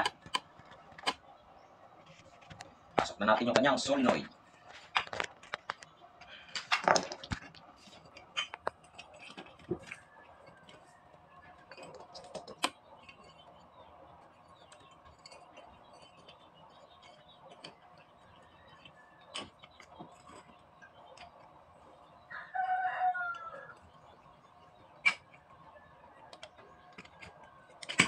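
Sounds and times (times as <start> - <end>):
rooster crowing: 22.3 - 23.8.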